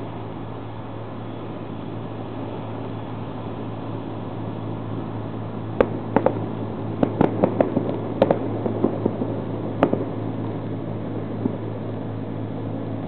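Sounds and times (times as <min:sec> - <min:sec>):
steady low hum: 0:00.0 - 0:13.0
fireworks bangs and pops: 0:05.8 - 0:11.8.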